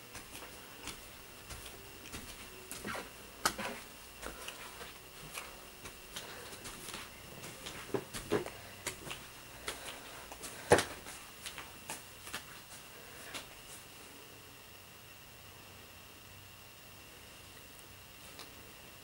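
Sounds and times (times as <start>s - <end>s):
footsteps on carpeted stairs: 0.0s - 13.8s.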